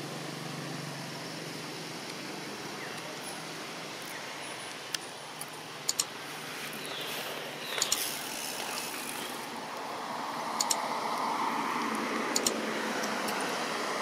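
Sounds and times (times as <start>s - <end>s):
outdoor background hiss: 0.0s - 14.0s
mouse double clicks: 10.6s - 10.8s, 12.3s - 12.6s.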